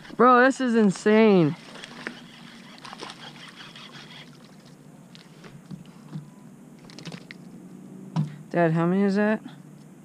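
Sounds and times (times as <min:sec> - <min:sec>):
fishing reel clicking: 0:01.8 - 0:04.3.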